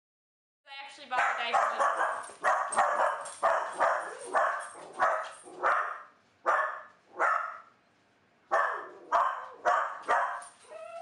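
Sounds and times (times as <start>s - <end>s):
dog barking: 1.2s - 7.7s, 8.5s - 10.6s
dog whining: 8.6s - 11.0s.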